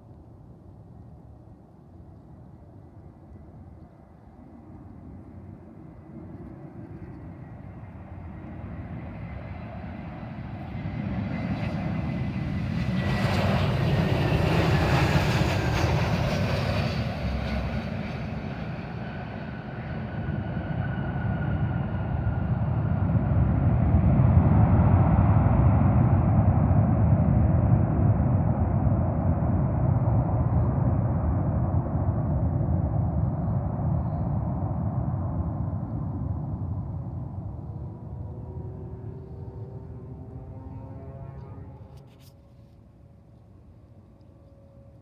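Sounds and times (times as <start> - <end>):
jet engine noise: 0.0 - 45.0
low rumble of jet rolling out: 0.0 - 45.0
high whine falling in pitch: 35.8 - 42.8.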